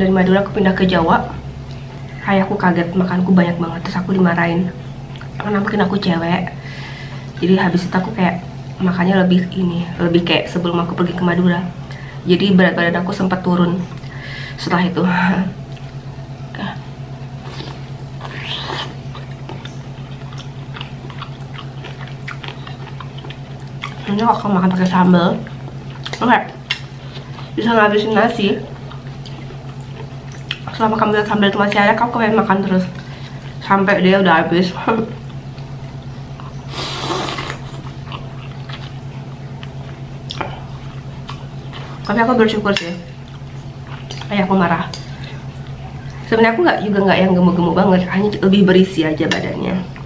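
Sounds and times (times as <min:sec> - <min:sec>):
steady low hum: 0:00.0 - 0:50.0
person chewing: 0:15.7 - 0:16.1, 0:17.3 - 0:24.2, 0:24.8 - 0:27.6, 0:28.6 - 0:30.8, 0:35.2 - 0:42.1, 0:43.2 - 0:44.3
person slurping noodles: 0:36.7 - 0:37.8.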